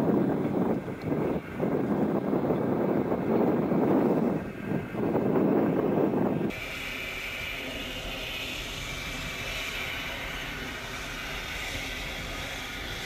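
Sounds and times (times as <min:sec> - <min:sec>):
train rolling rumble: 0:00.0 - 0:13.0
steam hissing: 0:06.5 - 0:13.0.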